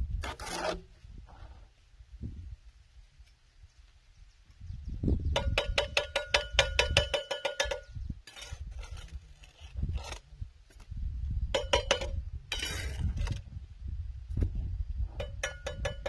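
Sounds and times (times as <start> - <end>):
trowel scraping mortar: 0.2 - 0.9, 7.5 - 10.2, 12.5 - 13.4
trowel tapping ceramic brick: 5.4 - 7.9, 15.2 - 16.0.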